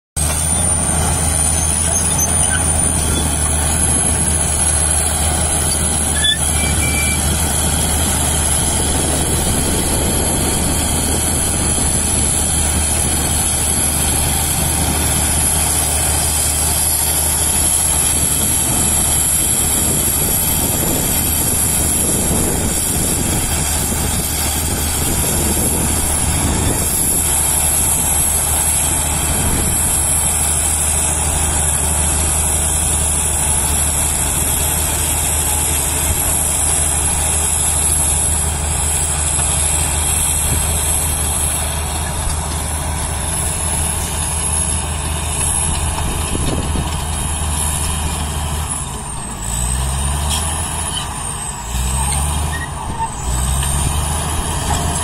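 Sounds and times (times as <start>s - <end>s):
bulldozer diesel engine running: 0.2s - 55.0s
high-pitched whine: 0.3s - 15.0s.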